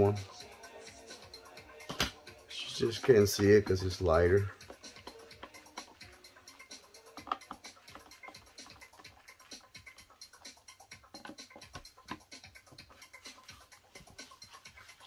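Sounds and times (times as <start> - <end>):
cable ties clicking and rustling: 7.0 - 9.7, 10.4 - 12.8.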